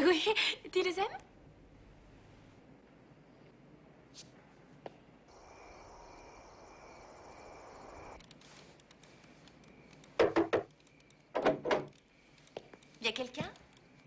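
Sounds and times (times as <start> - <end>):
crickets chirping: 5.3 - 14.0
knocks on wooden door: 10.2 - 10.7.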